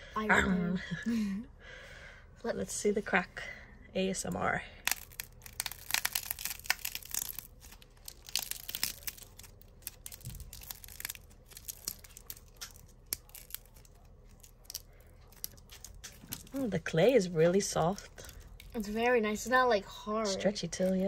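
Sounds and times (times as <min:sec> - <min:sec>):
slime crackling and tearing: 0:04.8 - 0:16.7, 0:17.9 - 0:19.2.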